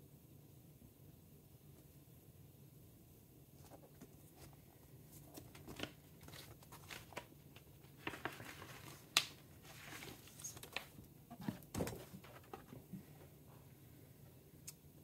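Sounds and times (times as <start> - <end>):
paper and cardboard rustling: 3.6 - 13.0.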